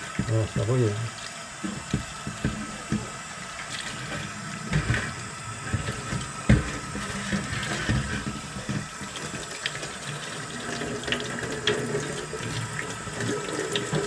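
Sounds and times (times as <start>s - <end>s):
kitchen tap running: 0.0s - 14.0s
metal tank rubbed by hand: 3.8s - 9.4s.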